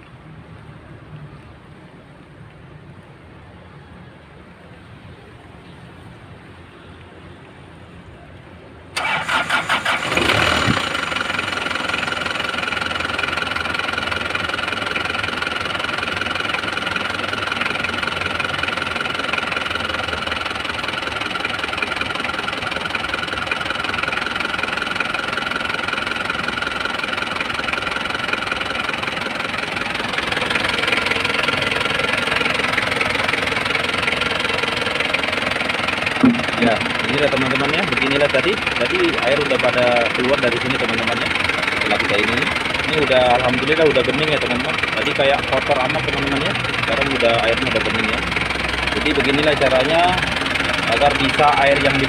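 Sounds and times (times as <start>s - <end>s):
car engine starting and idling: 8.8s - 52.0s
steady whine: 28.2s - 52.0s.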